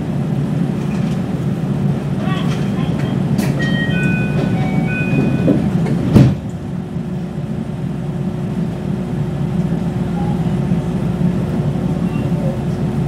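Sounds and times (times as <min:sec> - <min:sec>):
train equipment hum and rumble: 0:00.0 - 0:13.0
train doors shutting with thud: 0:00.1 - 0:07.4.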